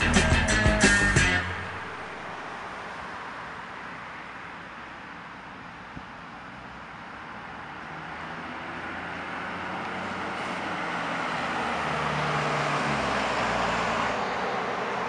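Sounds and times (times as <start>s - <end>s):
pickup truck passing: 0.0s - 4.9s, 6.4s - 15.0s.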